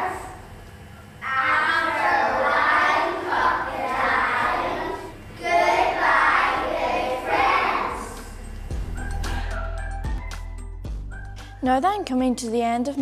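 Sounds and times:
children singing in unison: 1.2s - 8.3s.

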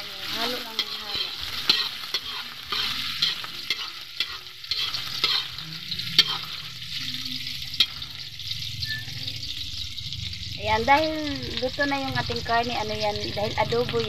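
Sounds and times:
spatula scraping and knocking pan: 0.0s - 6.6s
food sizzling in hot oil: 0.0s - 14.0s.

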